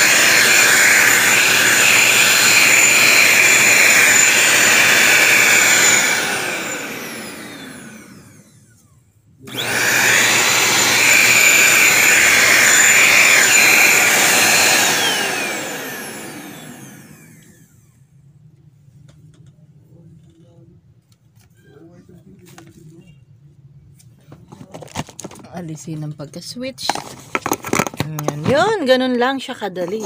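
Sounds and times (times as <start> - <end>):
handheld vacuum cleaner whine: 0.0 - 18.2.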